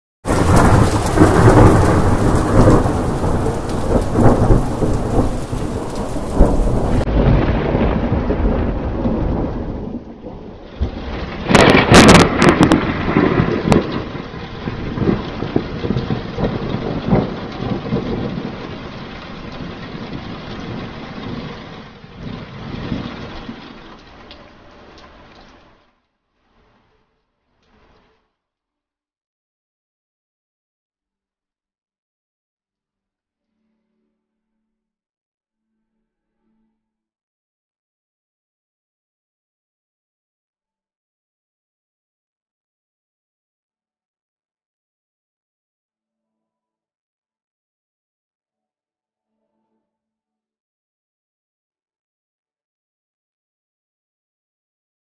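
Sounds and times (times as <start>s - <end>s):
thunder crack: 0.3s - 23.6s
thunder rumbling: 0.3s - 25.2s.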